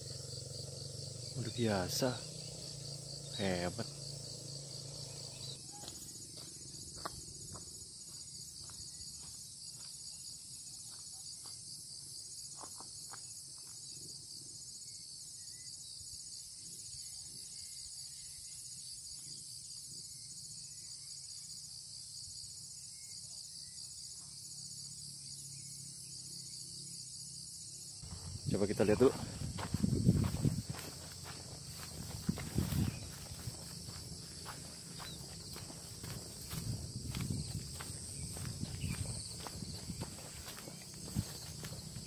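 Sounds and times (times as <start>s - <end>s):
insects chorus: 0.0s - 42.0s.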